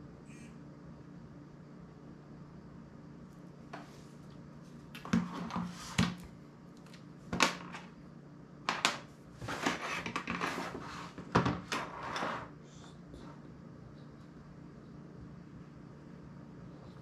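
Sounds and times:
rustling and scraping: 3.7s - 6.3s, 9.3s - 14.2s.

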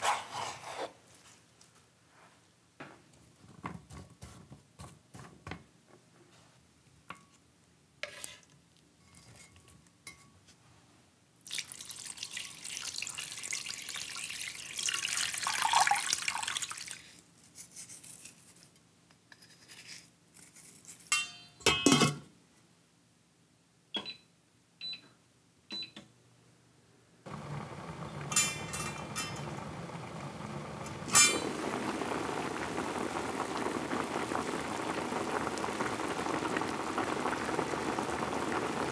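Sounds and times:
broth boiling: 11.5s - 16.9s, 27.3s - 38.9s
liquid rushing: 27.3s - 38.9s.

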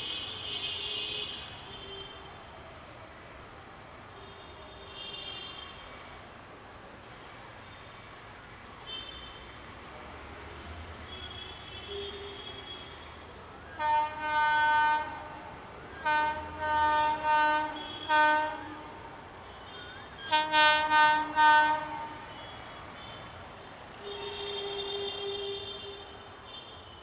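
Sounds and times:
locomotive horn blasts: 13.8s - 19.0s, 19.8s - 22.4s.

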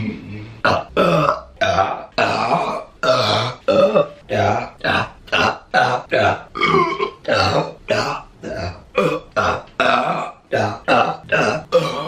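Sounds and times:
woman burping: 0.6s - 12.0s.

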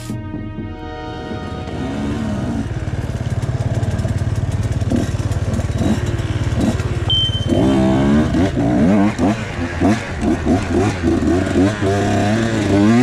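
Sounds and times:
motorcycle revving and accelerating: 1.2s - 13.0s
short high electronic beep: 7.1s - 7.7s.

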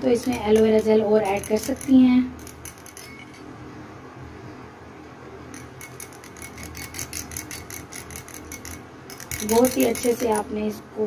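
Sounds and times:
low room hum: 0.0s - 11.0s
spoon clicking against glass bowl: 5.6s - 10.4s.

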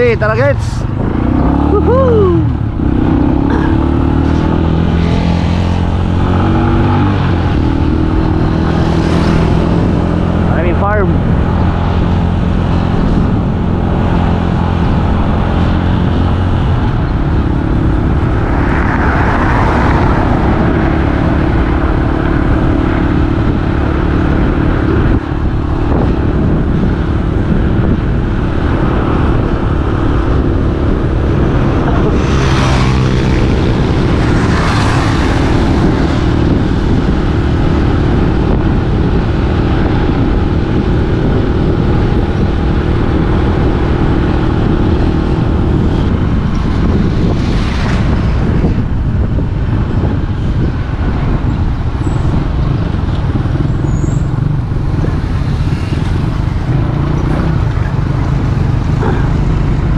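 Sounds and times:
wind and road noise rushing: 0.0s - 59.9s
vehicle engine running: 51.3s - 59.9s.

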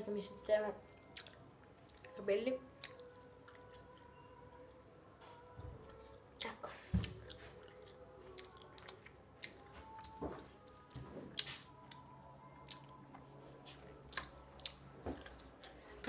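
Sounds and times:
faint low hum: 0.0s - 16.0s
lip and tongue clicks: 1.2s - 2.1s, 14.1s - 15.8s.

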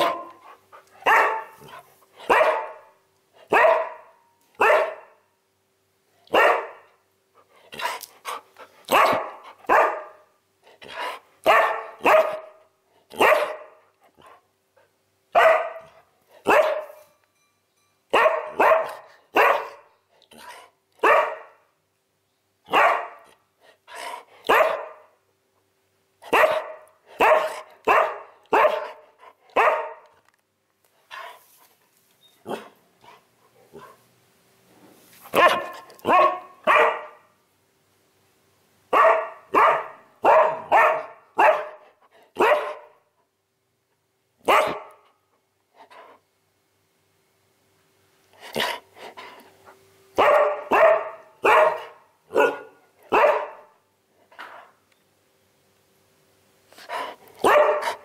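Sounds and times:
dog barking: 0.0s - 5.2s, 6.3s - 6.9s, 8.9s - 10.2s, 11.4s - 13.8s, 15.3s - 17.0s, 18.1s - 19.9s, 21.0s - 21.6s, 22.7s - 23.4s, 24.4s - 25.2s, 26.2s - 30.1s, 32.4s - 32.8s, 35.3s - 37.3s, 38.9s - 43.0s, 44.4s - 45.1s, 50.2s - 53.8s, 57.4s - 58.0s.

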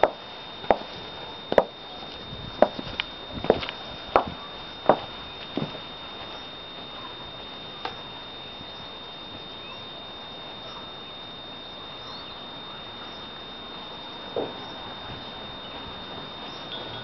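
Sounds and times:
faint high whine: 0.0s - 17.0s
high-heeled footstep: 1.5s - 1.7s, 2.6s - 5.8s.

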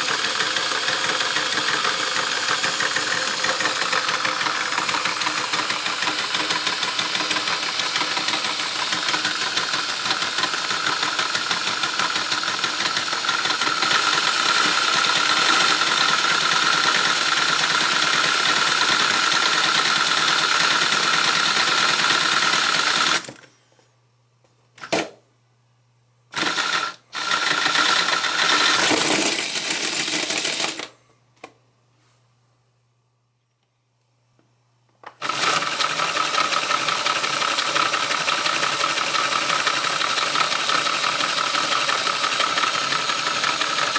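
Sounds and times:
plastic model engine clattering: 27.6s - 30.9s, 35.1s - 43.9s.

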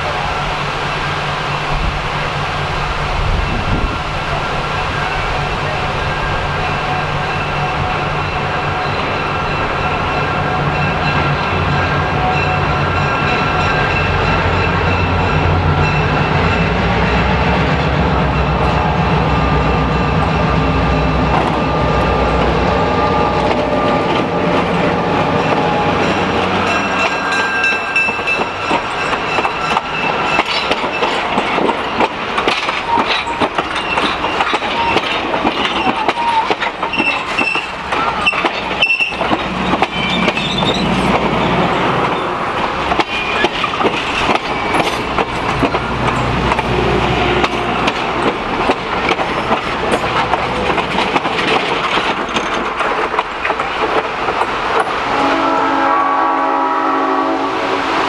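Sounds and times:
diesel locomotive rumbling past: 0.0s - 58.0s
train wheels clicking over rail joints: 23.3s - 55.0s
wheels squealing: 32.7s - 42.4s.

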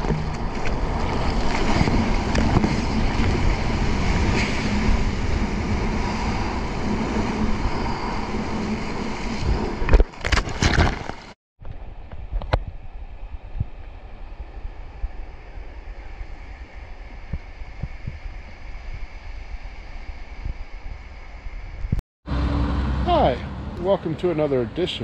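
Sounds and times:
water rushing and splashing: 0.0s - 7.3s
wind on microphone: 0.0s - 22.0s.

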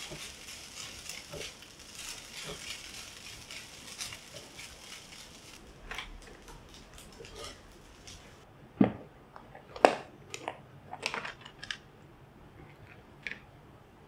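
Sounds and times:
spatula scraping wok: 0.0s - 5.6s, 6.2s - 8.4s
rice sizzling in a wok: 0.0s - 8.5s.

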